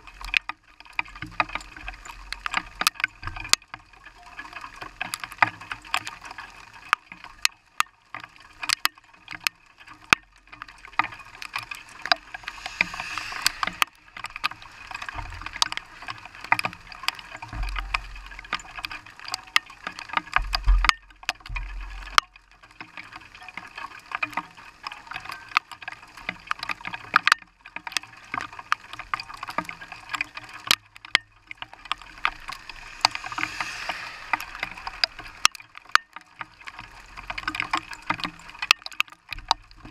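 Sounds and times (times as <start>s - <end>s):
rain ticking on vehicle: 0.0s - 39.9s
faint hiss: 10.9s - 16.5s, 31.5s - 37.8s
low rumbles: 30.9s - 36.1s.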